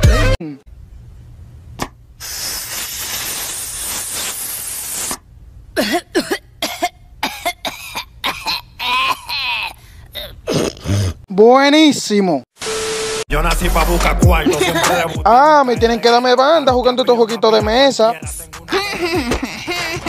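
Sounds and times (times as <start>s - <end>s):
cartoon boy hissing breath: 2.2s - 5.2s
cartoon boy coughing harshly: 5.8s - 11.2s.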